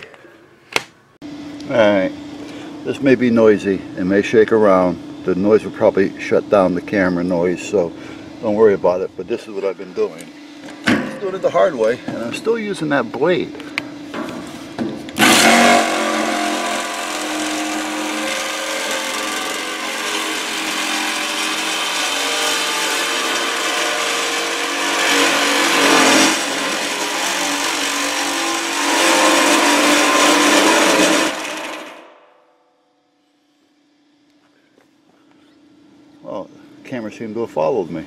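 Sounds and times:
reciprocating saw cutting metal: 0:15.2 - 0:32.3.

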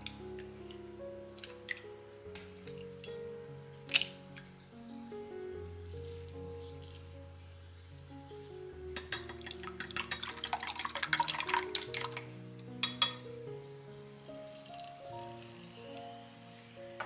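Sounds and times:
chopsticks beating eggs: 0:09.0 - 0:12.3.

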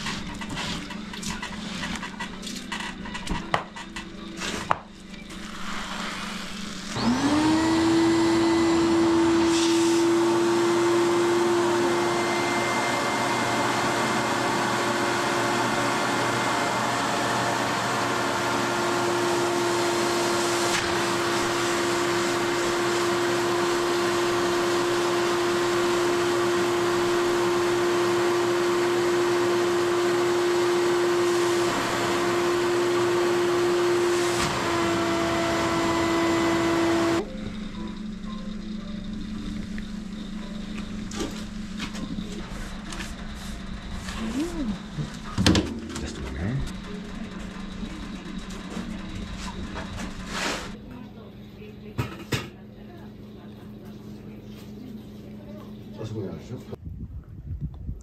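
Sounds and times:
vacuum suction motor: 0:00.0 - 0:50.8.

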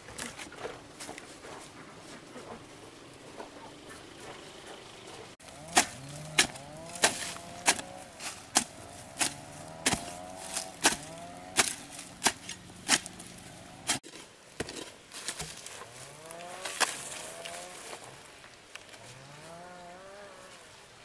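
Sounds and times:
hoe chopping into soil: 0:05.4 - 0:18.1.

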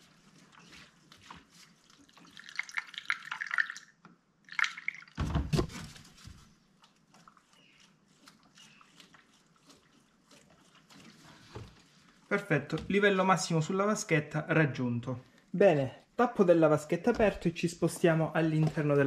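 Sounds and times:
liquid pouring and gurgling: 0:01.8 - 0:05.6.

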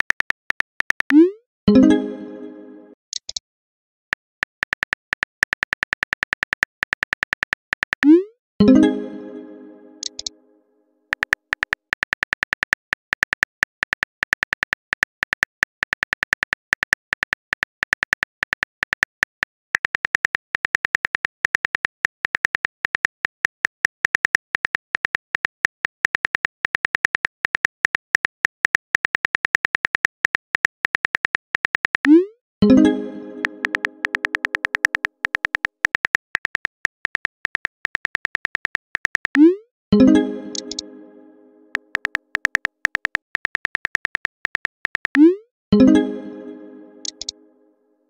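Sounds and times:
keypress clicks: 0:10.0 - 0:10.3, 0:33.4 - 0:39.4, 0:40.5 - 0:40.8, 0:41.9 - 0:45.2, 0:47.0 - 0:47.3.

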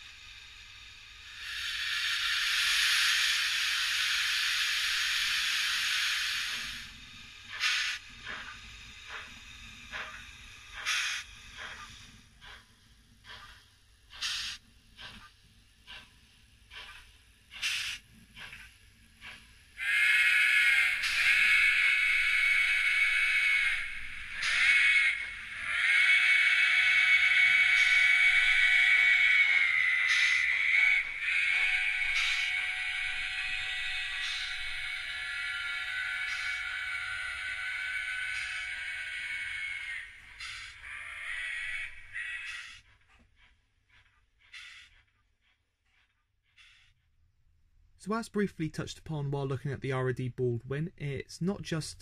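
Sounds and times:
loud steam hiss: 0:00.0 - 0:15.2, 0:15.9 - 0:18.6, 0:19.2 - 0:42.6
steam exhaust chuffs: 0:00.0 - 0:46.8
steady held whistle note: 0:19.8 - 0:40.8.

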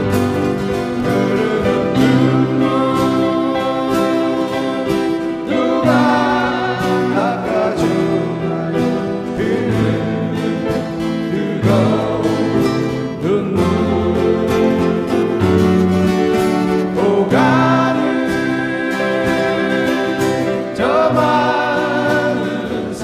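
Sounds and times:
acoustic band playing ballad: 0:00.0 - 0:23.0.

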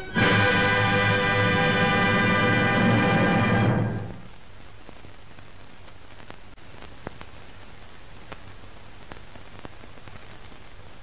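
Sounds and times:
low hum: 0:00.0 - 0:04.4
steady hiss: 0:00.0 - 0:11.0
sharp crackle pops: 0:04.2 - 0:11.0.

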